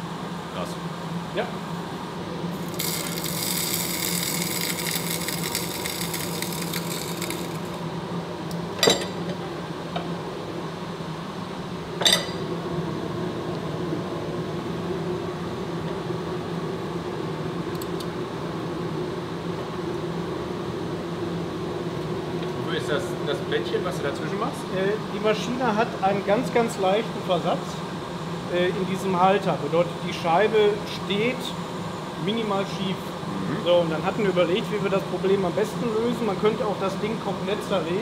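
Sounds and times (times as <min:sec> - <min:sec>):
grinding machine humming: 0:02.4 - 0:08.2
grinding wheel hiss: 0:02.5 - 0:07.8.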